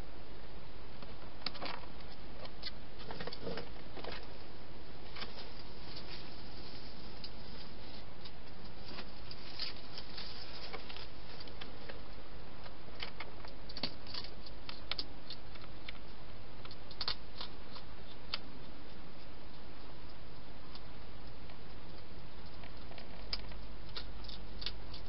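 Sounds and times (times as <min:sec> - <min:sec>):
microphone hiss: 0:00.0 - 0:25.0
hedgehog chewing food: 0:12.9 - 0:25.0.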